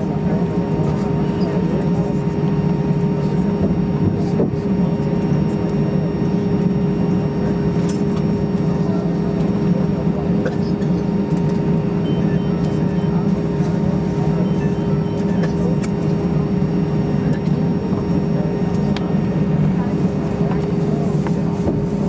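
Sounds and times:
airplane cabin drone: 0.0s - 22.0s
faint high engine tone: 11.8s - 21.1s.

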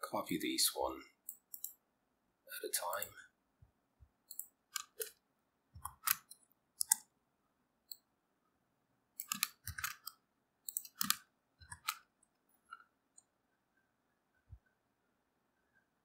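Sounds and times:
mouse and keyboard clicks: 1.3s - 1.8s, 4.3s - 5.2s, 5.8s - 7.1s, 9.2s - 12.1s.

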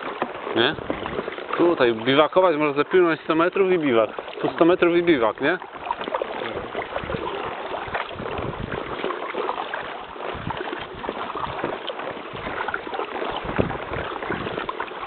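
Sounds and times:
rubbing noise near microphone: 0.0s - 1.4s, 6.0s - 15.0s
kayak paddle splashes: 0.0s - 15.0s
trickling water: 0.0s - 15.0s.

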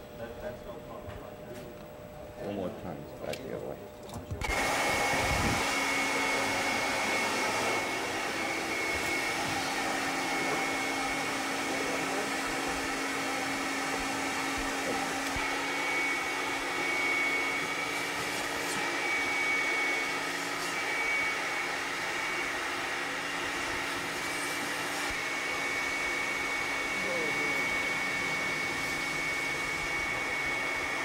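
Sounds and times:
steady whooshing blower noise: 4.3s - 31.0s.

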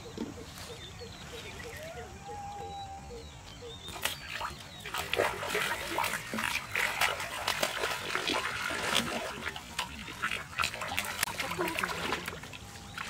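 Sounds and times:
fish splashing in water: 3.9s - 13.0s.

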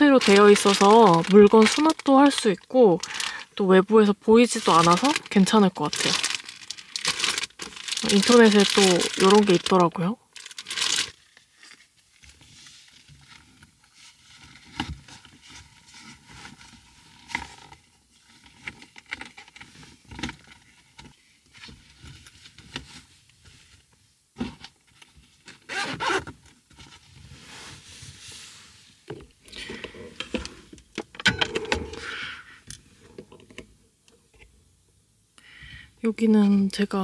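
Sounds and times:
fabric rustling and scraping: 0.0s - 2.4s, 25.7s - 29.1s.

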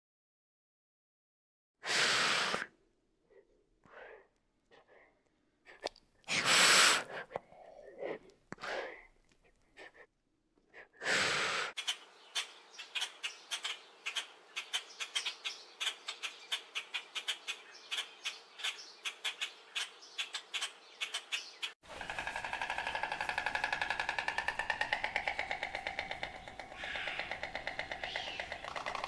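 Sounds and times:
lizard hissing: 1.8s - 2.7s, 6.3s - 7.3s, 11.0s - 11.8s
rapid bird clicking calls: 11.7s - 29.0s.

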